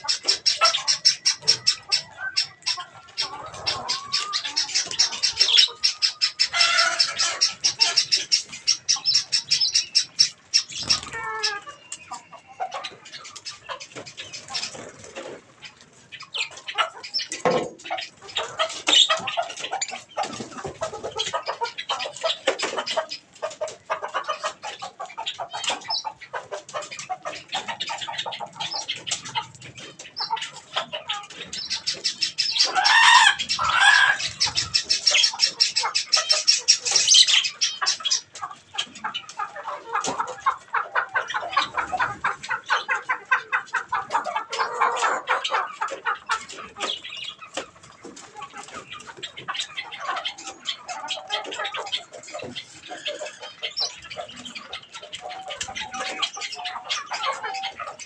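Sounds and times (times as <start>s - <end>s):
arching bird calls: 0.0s - 58.0s
budgerigars chattering and chirping: 0.0s - 58.0s
other birds: 0.0s - 58.0s
wingbeats: 7.4s - 11.6s.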